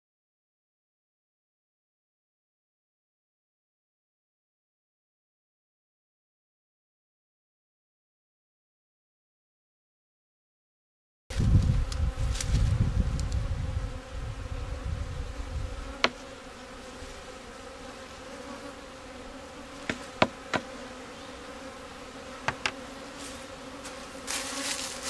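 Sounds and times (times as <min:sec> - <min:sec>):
bees buzzing: 0:11.3 - 0:25.0
sharp knocks: 0:22.4 - 0:22.8.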